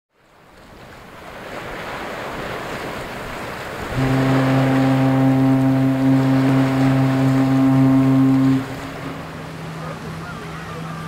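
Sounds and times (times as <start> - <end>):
surf: 0.1 - 11.0
wind: 0.1 - 11.0
ship's horn low blast: 3.8 - 11.0.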